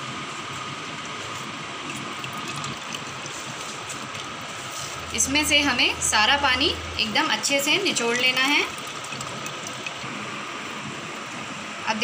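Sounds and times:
water trickling: 0:01.8 - 0:05.2, 0:07.9 - 0:10.1.

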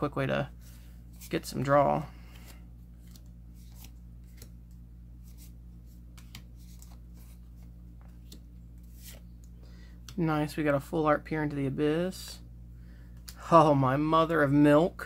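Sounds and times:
playing cards clicking and sliding: 0:00.6 - 0:09.4.

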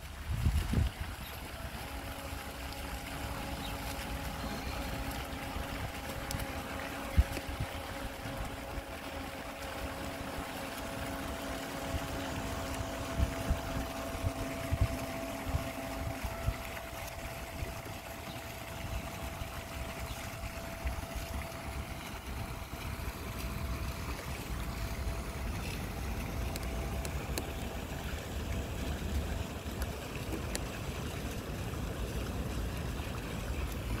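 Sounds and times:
wind rumbling on microphone: 0:00.1 - 0:01.6, 0:12.8 - 0:17.8
electric motor whine: 0:01.2 - 0:29.9.

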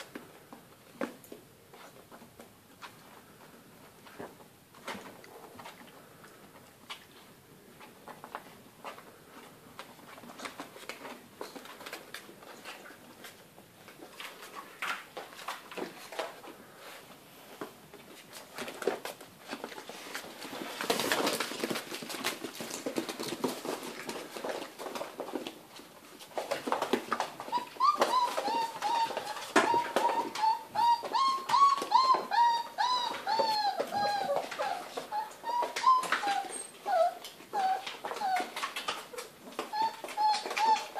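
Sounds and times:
puppy paws pattering and scraping: 0:00.0 - 0:40.9
puppy whining: 0:26.4 - 0:40.9.

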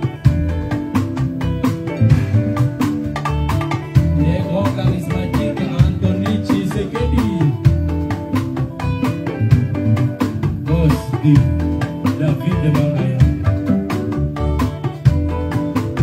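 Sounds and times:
live band music: 0:00.0 - 0:16.0
person singing: 0:04.0 - 0:07.8, 0:09.3 - 0:13.7.

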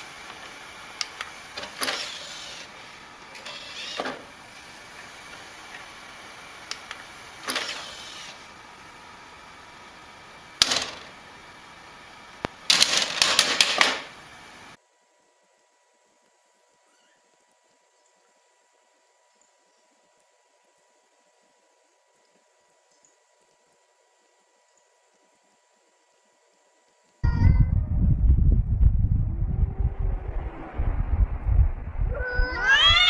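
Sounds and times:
drive tray mechanical whirs: 0:00.0 - 0:14.8
rapid clicking and rattling: 0:12.7 - 0:14.1.

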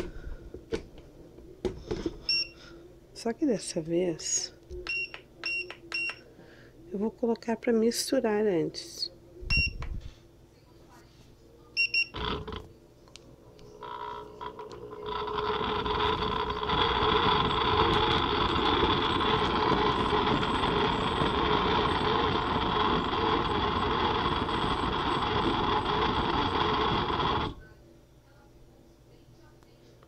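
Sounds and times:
blender motor churning soup: 0:12.2 - 0:12.7, 0:13.8 - 0:27.6.

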